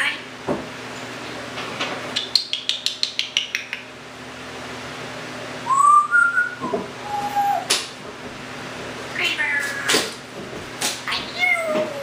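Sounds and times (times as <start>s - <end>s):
parrot clicking: 2.2s - 3.9s
parrot whistle rising: 5.6s - 7.7s.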